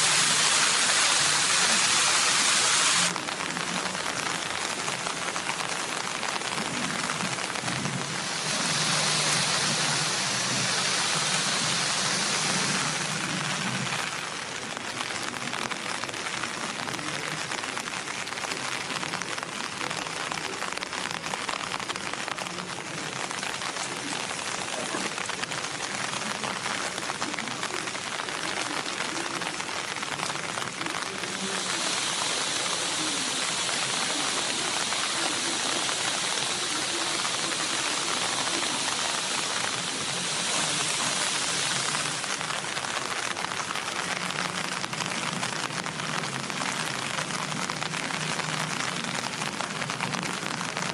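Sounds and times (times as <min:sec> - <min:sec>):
steady rain hiss: 0:00.0 - 0:50.9.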